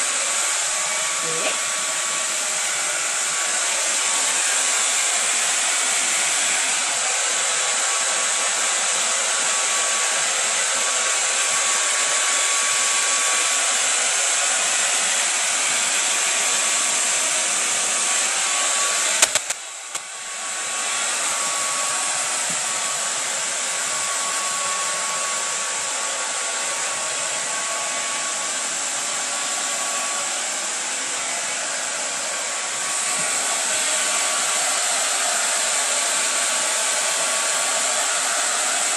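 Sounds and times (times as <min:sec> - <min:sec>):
hair dryer blowing: 0:00.0 - 0:38.9
hair dryer switch click: 0:19.2 - 0:20.0.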